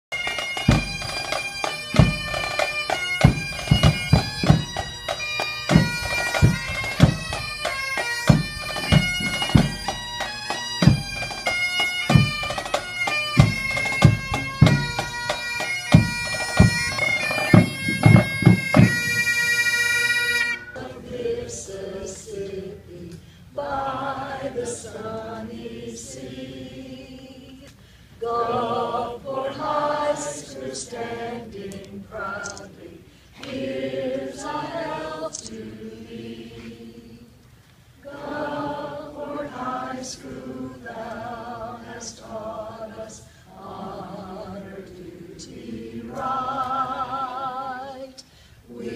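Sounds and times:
bagpipes playing: 0.1s - 21.0s
group singing unaccompanied: 0.6s - 11.4s, 20.5s - 37.4s, 38.0s - 48.9s
low drum beat: 3.2s - 5.0s, 15.9s - 19.2s.

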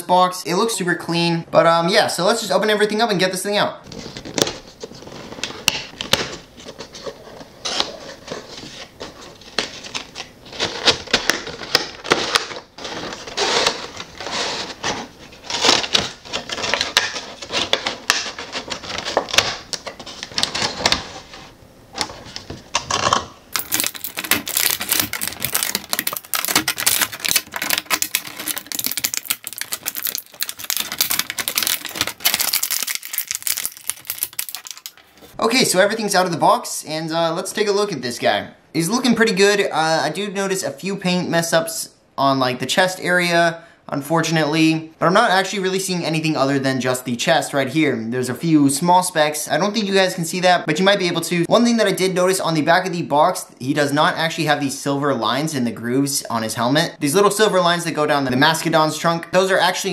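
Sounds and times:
plastic packaging crackling: 3.9s - 21.3s, 22.0s - 35.4s
cardboard rustling: 3.9s - 35.4s.

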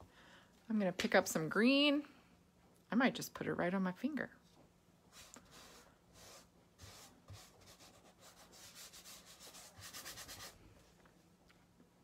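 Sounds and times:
fingertip rubbing paint on canvas: 5.1s - 10.6s.

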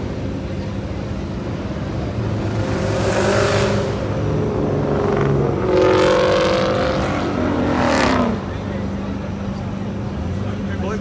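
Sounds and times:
car engine running: 0.0s - 11.0s
car driving past: 1.6s - 8.6s.

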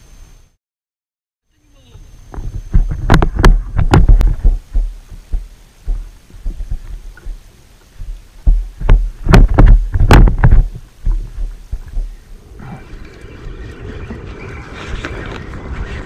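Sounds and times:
dull thumps and knocks on kayak: 2.8s - 7.4s, 8.0s - 12.1s.

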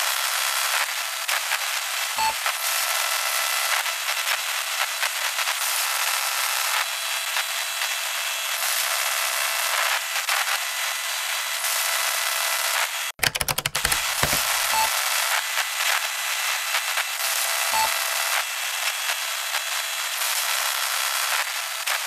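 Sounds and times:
clicks and pops: 13.2s - 14.9s.

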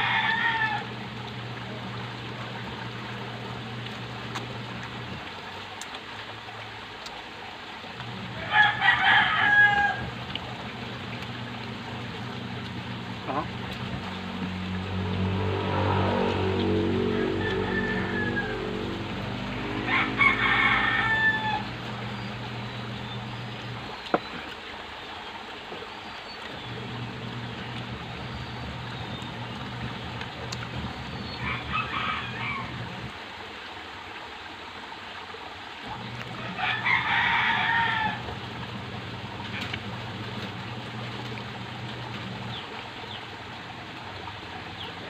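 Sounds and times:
rooster crowing: 0.0s - 1.0s, 8.3s - 10.2s, 15.4s - 21.8s, 31.4s - 33.0s, 36.4s - 38.4s
steady low hum: 0.0s - 6.9s, 7.8s - 33.2s, 35.8s - 45.0s.

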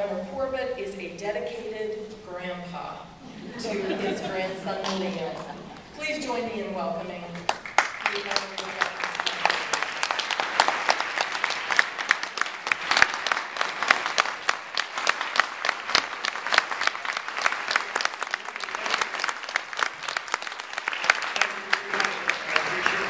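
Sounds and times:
audience applauding: 7.4s - 23.0s
sharp loud claps close by: 7.4s - 23.0s.

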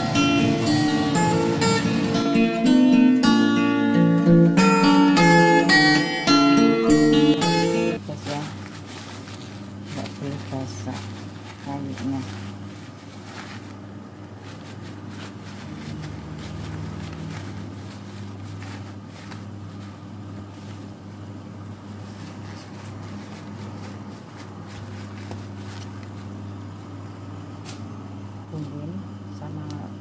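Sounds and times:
paper towel rustling: 0.0s - 2.4s, 7.3s - 27.9s
steady low hum: 7.3s - 30.0s.

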